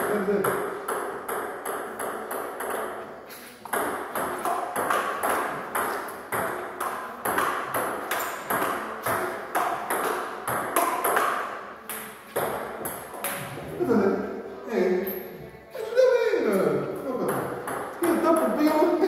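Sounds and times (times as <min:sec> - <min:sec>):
ball bouncing on table: 0:00.0 - 0:13.7, 0:17.2 - 0:19.0
ping-pong ball hitting paddles: 0:00.0 - 0:13.7, 0:17.2 - 0:19.0.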